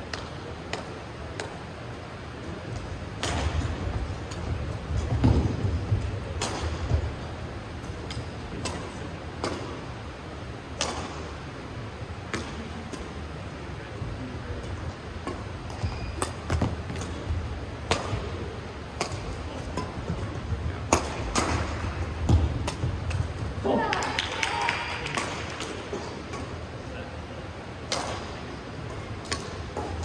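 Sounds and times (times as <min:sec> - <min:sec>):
rackets striking shuttlecock: 0:03.1 - 0:04.5, 0:06.3 - 0:07.1, 0:10.8 - 0:11.3, 0:12.3 - 0:13.1, 0:15.2 - 0:20.2, 0:20.8 - 0:23.5, 0:27.9 - 0:30.0.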